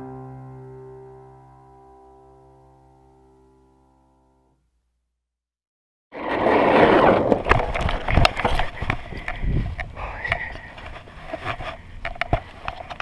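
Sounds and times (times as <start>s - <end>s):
skateboard wheels rolling on asphalt: 6.1s - 9.9s
wind on microphone: 7.4s - 10.7s.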